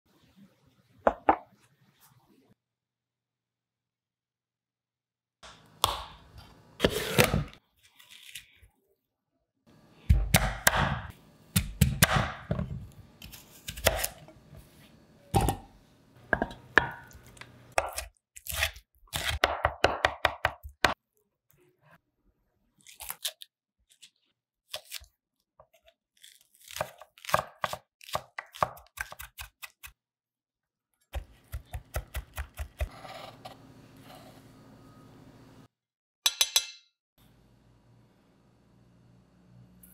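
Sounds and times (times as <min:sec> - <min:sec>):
knife chopping on wooden board: 0:10.1 - 0:12.8.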